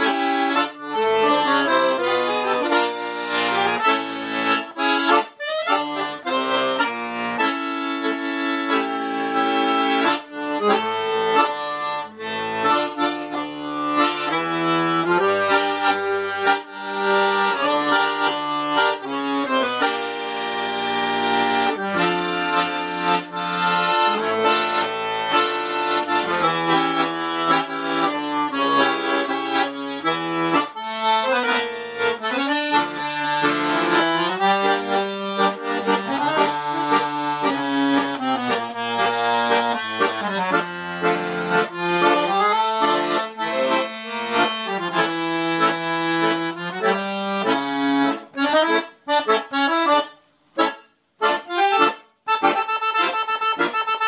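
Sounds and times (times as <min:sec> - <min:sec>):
accordion playing a tango: 0:00.0 - 0:54.0.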